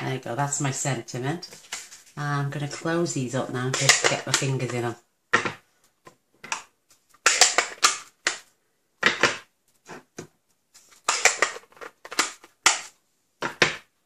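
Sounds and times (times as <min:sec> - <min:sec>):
plastic cases snapping shut: 0:11.0 - 0:13.8.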